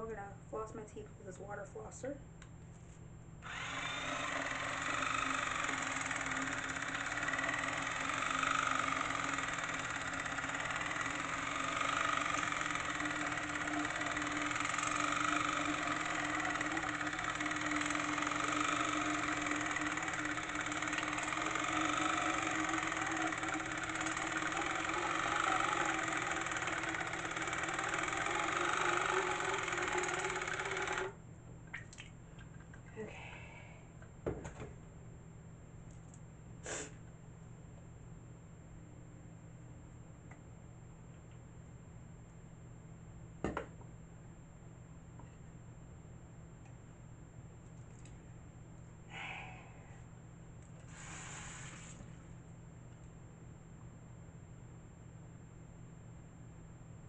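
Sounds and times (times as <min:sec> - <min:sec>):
water flosser pump motor: 0:03.4 - 0:31.2.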